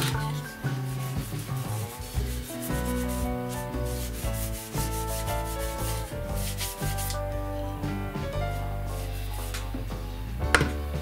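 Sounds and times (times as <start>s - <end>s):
cloth rag wiping wood: 0.0s - 7.2s.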